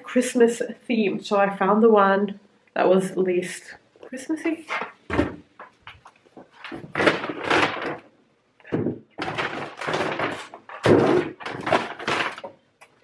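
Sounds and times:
paper bag rustling: 5.9s - 8.1s, 9.2s - 12.6s.

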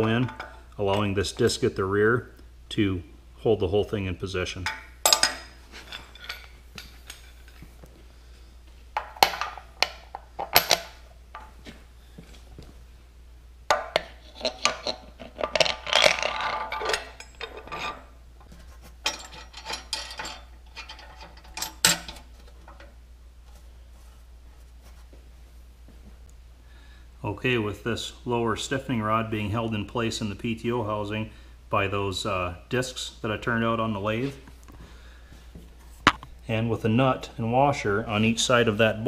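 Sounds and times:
metal clinking and scraping: 0.0s - 1.2s, 4.6s - 7.7s, 9.0s - 11.6s, 13.7s - 23.0s.

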